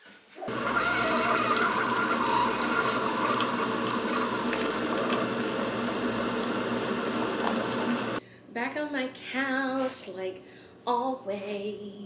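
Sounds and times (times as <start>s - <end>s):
coffee maker pump humming: 0.5s - 8.2s
coffee pouring into a mug: 0.5s - 8.2s.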